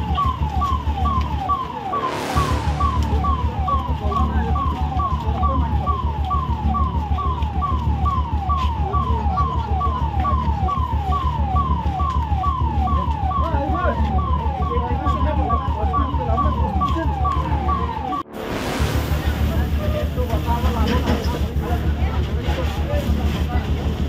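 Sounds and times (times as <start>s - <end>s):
emergency vehicle siren: 0.0s - 24.0s
engine rumble: 0.0s - 24.0s.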